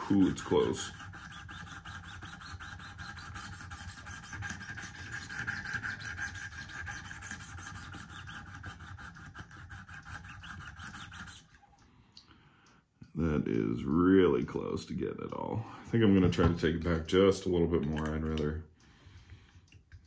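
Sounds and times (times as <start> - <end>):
sharpening stone scraping steel: 0.0 - 11.5.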